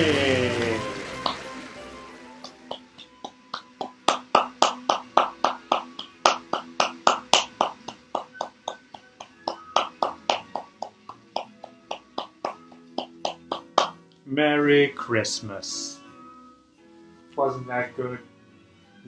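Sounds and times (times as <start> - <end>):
man clapping hands: 0.5 - 1.6, 2.4 - 14.0.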